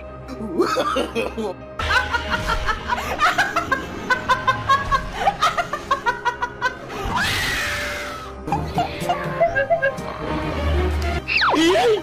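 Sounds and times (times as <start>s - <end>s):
woman laughing hysterically: 0.6s - 7.0s, 8.4s - 10.0s.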